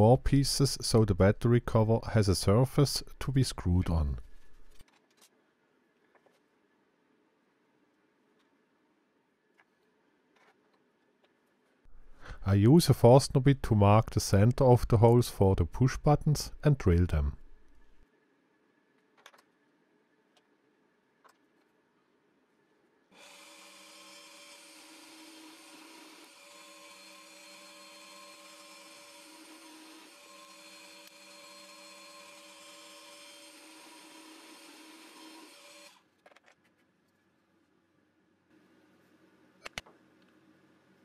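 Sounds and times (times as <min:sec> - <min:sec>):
drill bit drilling through wood: 0:23.2 - 0:36.0
drill press motor running: 0:23.2 - 0:36.0.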